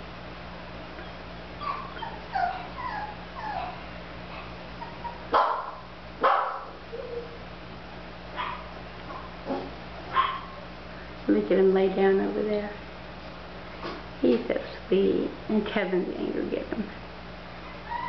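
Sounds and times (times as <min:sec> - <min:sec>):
puppies whimpering and yipping: 0:01.0 - 0:05.3, 0:17.6 - 0:18.0
puppy barking: 0:01.6 - 0:07.4, 0:08.4 - 0:10.6.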